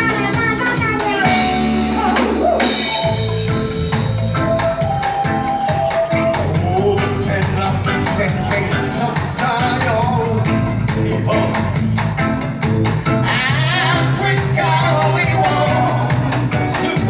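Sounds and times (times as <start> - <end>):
man singing lead vocals: 0.0 - 12.1, 13.0 - 17.0
drum kit beat: 0.0 - 17.0
reggae band playing: 0.0 - 17.0.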